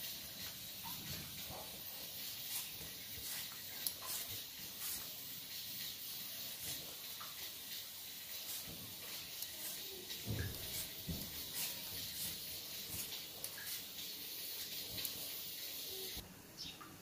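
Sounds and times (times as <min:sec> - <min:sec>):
steady hiss: 0:00.0 - 0:16.6
potato peeling scrapes: 0:02.1 - 0:07.6, 0:08.2 - 0:15.2.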